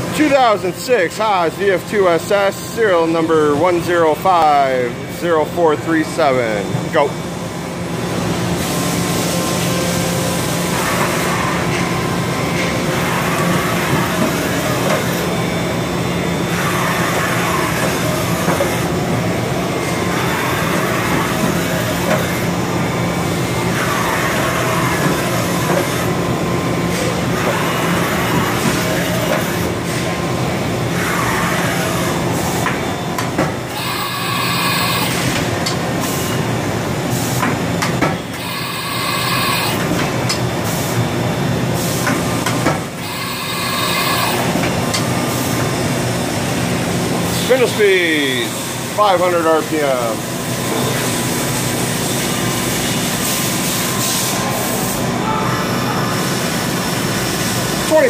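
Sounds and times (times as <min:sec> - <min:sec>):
steady machine hum: 0:00.0 - 0:58.0
servo motors whining: 0:33.7 - 0:35.2, 0:38.4 - 0:39.8.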